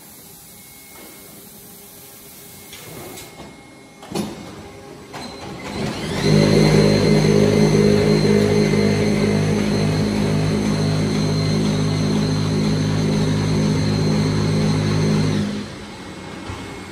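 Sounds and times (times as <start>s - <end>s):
machinery humming: 5.7s - 16.9s
rising tone: 6.0s - 16.0s.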